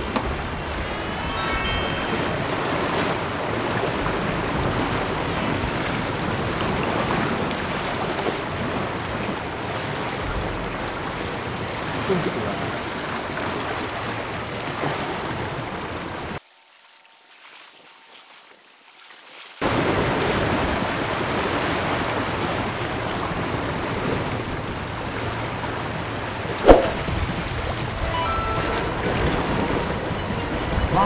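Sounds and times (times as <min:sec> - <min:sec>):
sea waves washing on rocks: 0:02.2 - 0:16.4, 0:19.6 - 0:30.0
wind buffeting microphone: 0:02.3 - 0:16.4, 0:19.6 - 0:28.1.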